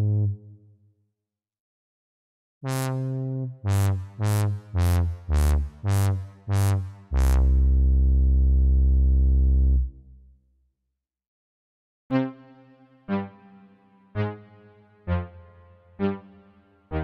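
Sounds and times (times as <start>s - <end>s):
synthesizer chords with bass: 2.7s - 10.1s, 12.1s - 17.0s.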